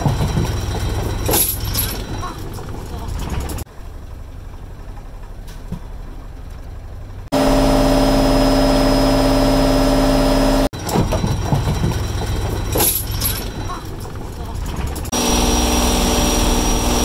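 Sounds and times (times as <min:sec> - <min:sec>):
boat engine rumbling: 0:00.0 - 0:17.0
loud pitched hum: 0:07.3 - 0:11.2, 0:15.1 - 0:17.0.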